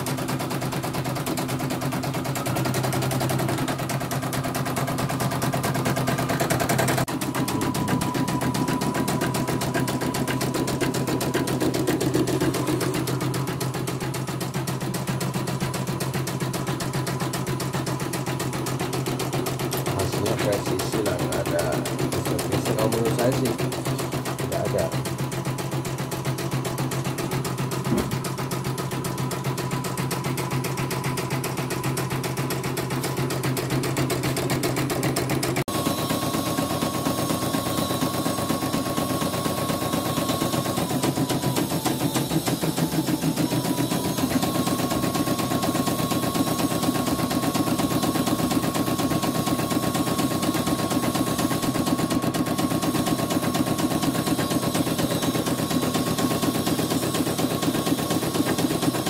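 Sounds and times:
embroidery machine needle clatter: 0.0s - 31.1s
motor hum: 0.0s - 59.0s.

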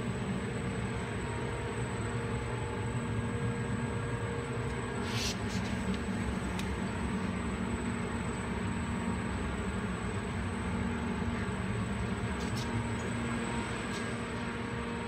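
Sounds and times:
low machinery hum: 0.0s - 15.0s
short hiss: 5.0s - 5.8s.

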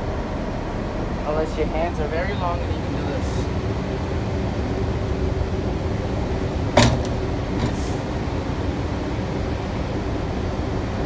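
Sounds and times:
subway car rumble and hum: 0.0s - 11.0s.

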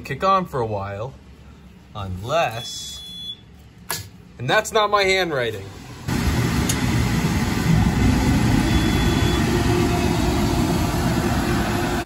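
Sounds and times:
boiler burner roaring: 4.9s - 12.0s.

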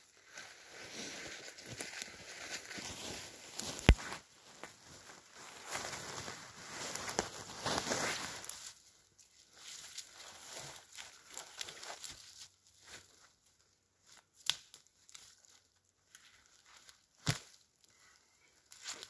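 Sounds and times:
twigs crackling and rustling: 0.0s - 19.0s
branches snapping: 3.6s - 4.2s, 14.4s - 15.2s, 17.2s - 17.6s.

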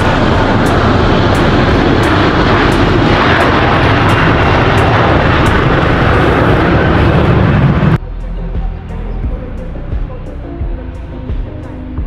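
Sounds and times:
jet engines at takeoff: 0.0s - 8.0s.

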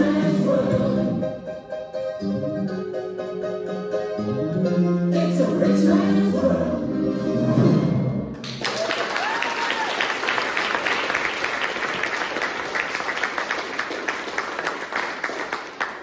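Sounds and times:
music: 0.0s - 8.6s
audience applause: 8.4s - 16.0s.

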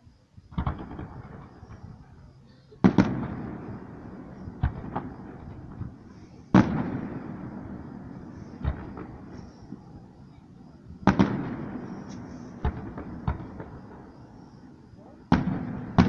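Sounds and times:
echo of firework bangs: 0.5s - 16.0s
firework shells bursting: 2.8s - 10.0s, 11.0s - 16.0s.

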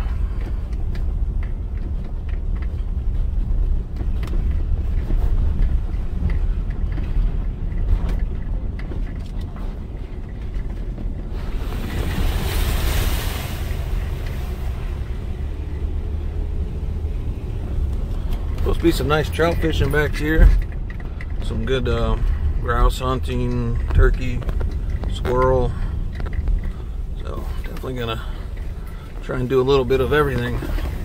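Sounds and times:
knocks and rattles from bumps: 0.0s - 12.6s, 13.6s - 31.0s
car engine and tyres rumbling: 0.0s - 31.0s
rushing hissing noise: 11.3s - 15.1s.

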